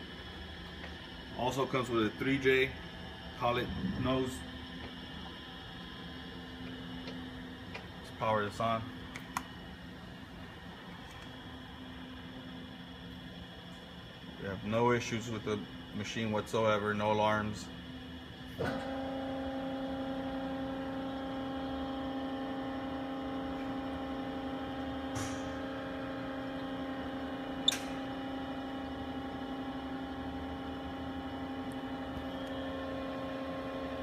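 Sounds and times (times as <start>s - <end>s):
machine humming: 0.0s - 34.0s
sharp click: 27.7s - 28.0s.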